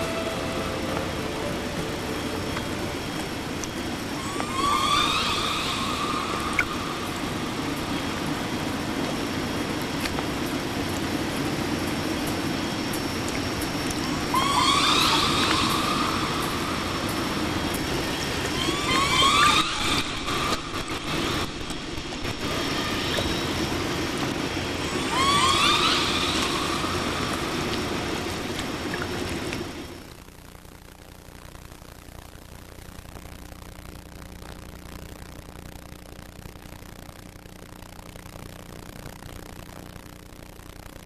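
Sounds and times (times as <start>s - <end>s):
steady hiss and low hum: 0.0s - 41.0s
killer whale calls: 4.0s - 8.1s, 14.1s - 21.4s, 24.8s - 28.4s.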